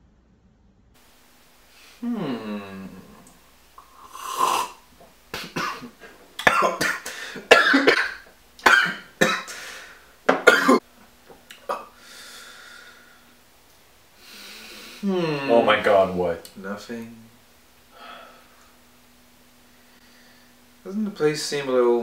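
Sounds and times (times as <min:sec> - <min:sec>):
person sipping drink: 0:01.7 - 0:04.8
man coughing harshly: 0:05.4 - 0:09.6, 0:10.3 - 0:10.8.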